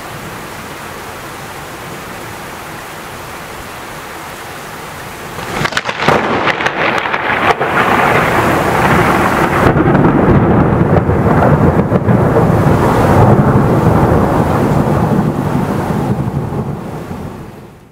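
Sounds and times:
rain: 0.0 - 17.9
rolling thunder rumble: 5.3 - 17.9
thunderclap crack: 5.4 - 17.4.

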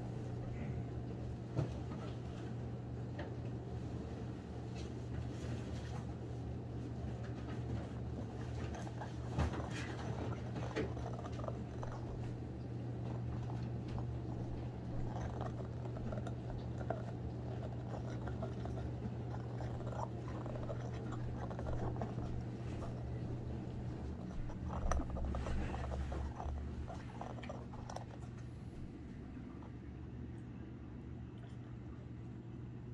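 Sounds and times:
steady low hum: 0.0 - 32.9
dog chewing rubber toy: 7.0 - 29.1.

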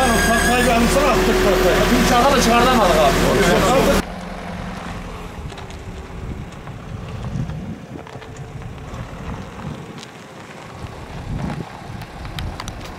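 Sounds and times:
wind buffeting microphone: 4.9 - 12.9.

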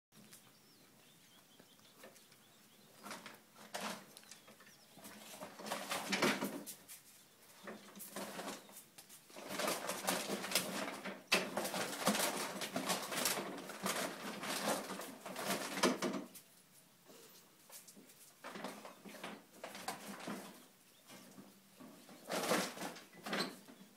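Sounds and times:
bags and packaging rustling: 3.1 - 16.3.

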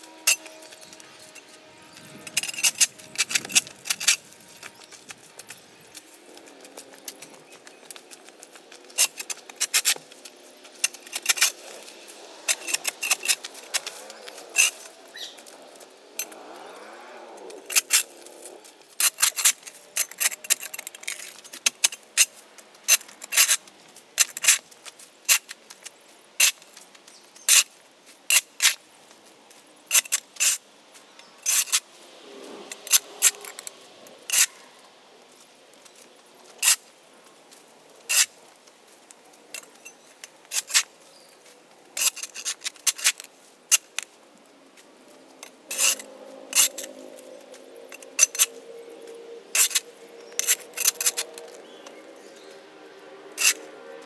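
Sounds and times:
shovel scraping concrete: 0.0 - 5.9, 8.5 - 15.6, 17.6 - 22.3, 32.4 - 34.6, 38.1 - 38.4, 40.4 - 40.9, 42.0 - 44.0, 45.4 - 47.0, 49.5 - 51.8, 53.4 - 53.7.

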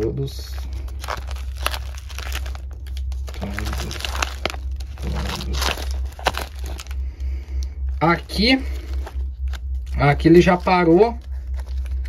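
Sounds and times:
steady low hum: 0.0 - 12.0
notebook pages rustling: 0.5 - 7.0, 11.3 - 12.0.

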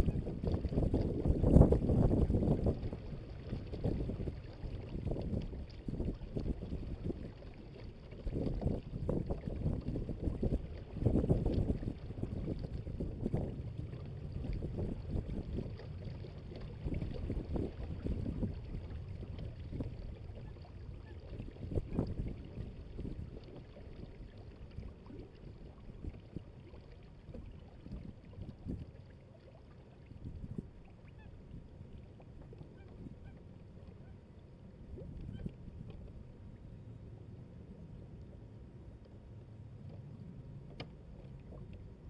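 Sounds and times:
wind noise on microphone: 0.0 - 29.0, 30.1 - 31.8, 32.4 - 33.4, 34.8 - 36.4
water rushing along a hull: 0.0 - 42.0.

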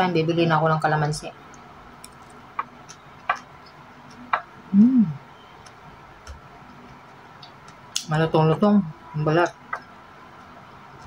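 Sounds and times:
closed-mouth hum: 4.2 - 5.7.

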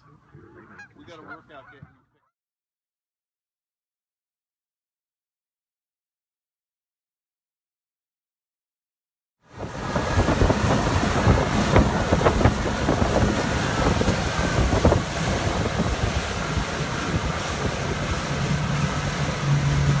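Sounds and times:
outboard motor humming: 9.5 - 20.0
water rushing: 9.5 - 20.0
wind buffeting microphone: 9.5 - 20.0.

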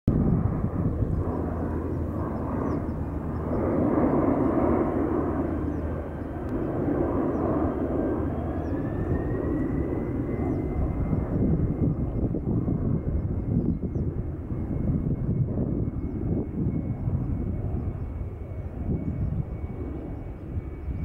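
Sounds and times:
jet engines rumbling on takeoff: 0.1 - 21.0.

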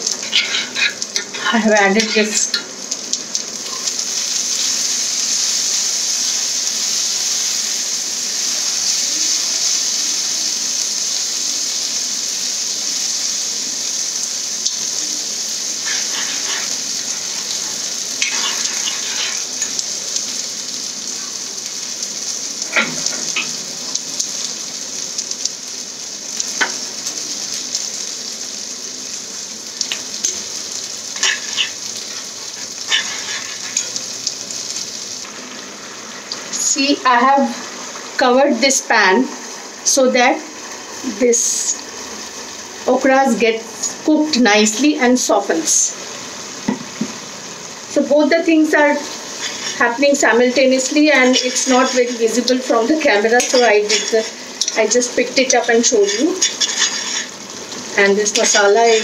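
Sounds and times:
metal spoon scraping a pan: 0.0 - 2.7, 15.8 - 19.8, 31.2 - 34.2, 48.8 - 57.5, 58.1 - 59.0
paste sizzling in a pan: 0.0 - 59.0.

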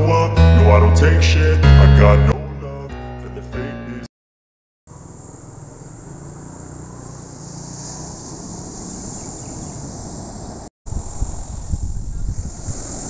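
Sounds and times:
insects buzzing: 4.9 - 10.6.

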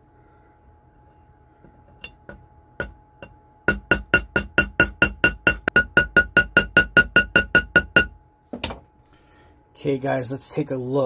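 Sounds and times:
hammer tapping metal pin: 1.9 - 8.8.

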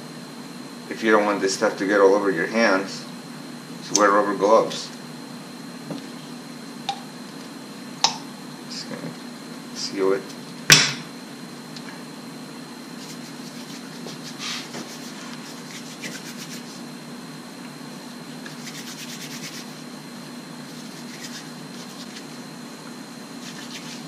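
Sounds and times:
low steady hum: 0.0 - 24.0
palms rubbing putty: 13.0 - 16.8, 23.4 - 24.0.

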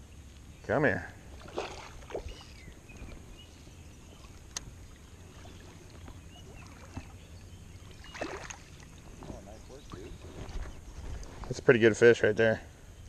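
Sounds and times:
water sloshing and lapping: 1.3 - 11.5.

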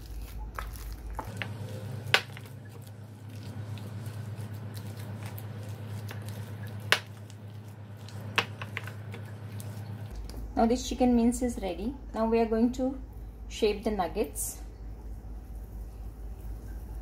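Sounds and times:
hands kneading wet mince: 0.0 - 10.6
steady low hum: 0.0 - 17.0.

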